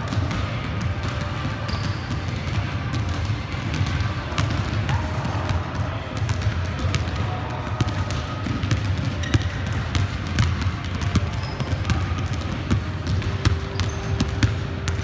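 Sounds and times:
basketballs bouncing on wooden floor: 0.0 - 15.0.

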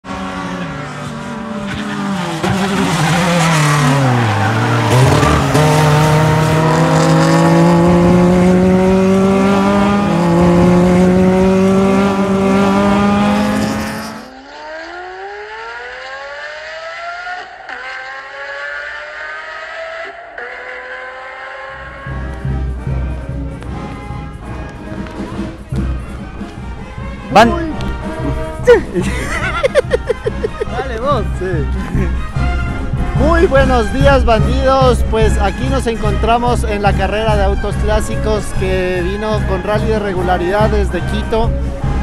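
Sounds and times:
race car engine at high revs: 0.0 - 30.7
quieter rising tones: 0.0 - 33.2.

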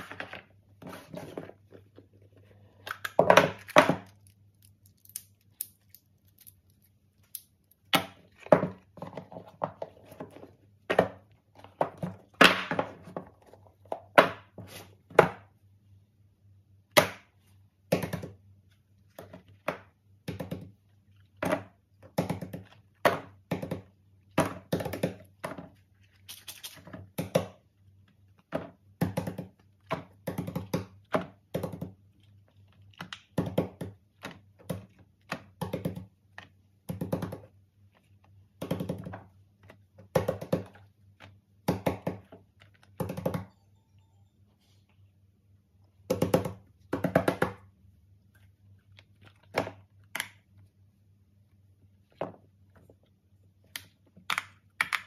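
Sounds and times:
boxes and toys thunking on tabletop: 3.0 - 4.2, 7.9 - 15.5.

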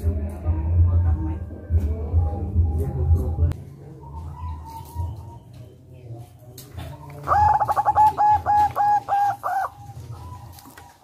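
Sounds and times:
dove cooing: 3.8 - 5.7, 6.7 - 11.0.

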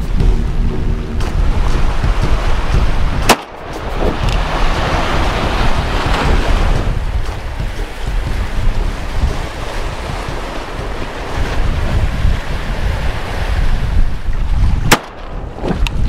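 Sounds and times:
waves and surf: 0.0 - 16.0
wind buffeting microphone: 0.0 - 16.0
sharp crack: 3.2 - 4.4, 14.9 - 15.9.

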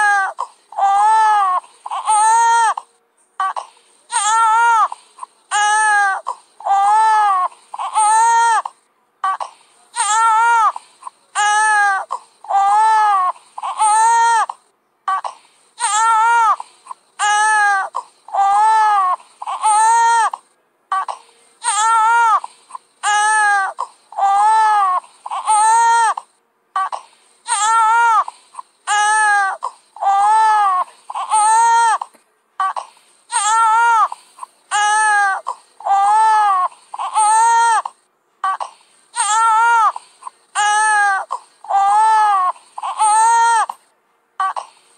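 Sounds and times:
baby crying loudly: 0.0 - 2.8, 3.4 - 4.9, 5.5 - 9.4, 10.0 - 10.8, 11.4 - 14.5, 15.8 - 16.6, 17.2 - 20.3, 20.9 - 22.4, 23.0 - 26.2, 26.8 - 28.3, 28.9 - 32.0, 32.6 - 34.1, 34.7 - 38.6, 39.2 - 40.0, 40.6 - 43.7.

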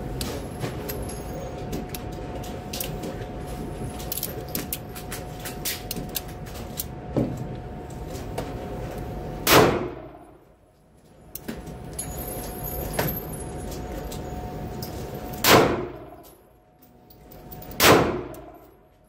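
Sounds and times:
revolver gunshot: 9.4 - 10.2, 15.4 - 16.0, 17.8 - 18.3.

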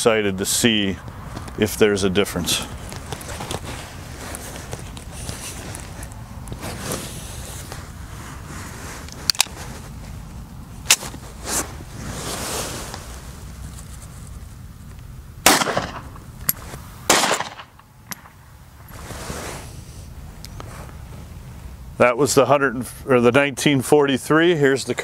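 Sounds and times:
loud bang: 15.4 - 16.1
pistol shot: 15.4 - 16.1, 17.1 - 17.7.

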